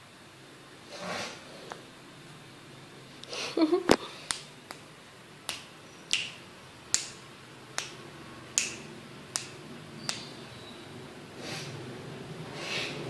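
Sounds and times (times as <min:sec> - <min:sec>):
fingers snapping: 0:04.3 - 0:04.9, 0:05.5 - 0:07.2, 0:07.8 - 0:10.3.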